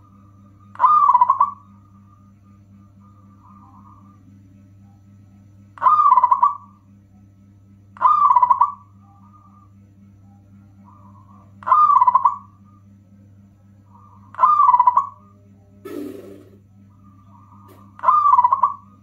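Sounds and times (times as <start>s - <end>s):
steady low hum: 0.0s - 19.0s
dove cooing: 0.7s - 1.8s, 5.8s - 6.7s, 8.0s - 9.6s, 10.8s - 12.6s, 13.9s - 15.2s, 15.8s - 19.0s.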